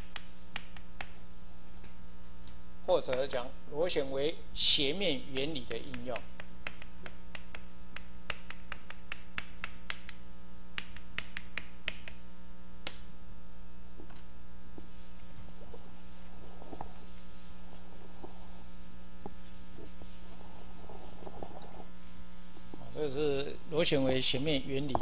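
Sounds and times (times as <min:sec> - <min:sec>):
electrical mains hum: 0:00.0 - 0:25.0
chalk tapping and scratching: 0:05.6 - 0:10.2, 0:10.8 - 0:12.2.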